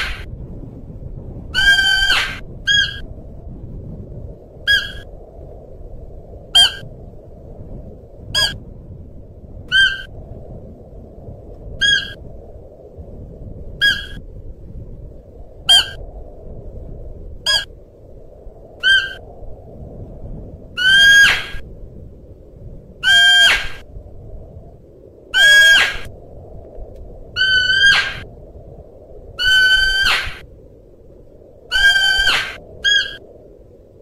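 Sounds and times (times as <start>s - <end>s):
deer calling high-pitched: 31.7s - 33.2s.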